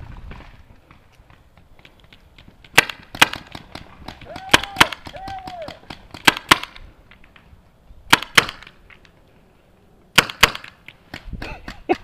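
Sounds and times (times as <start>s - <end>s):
paintball pistol shots: 2.7s - 6.8s, 8.1s - 8.8s, 10.1s - 11.3s.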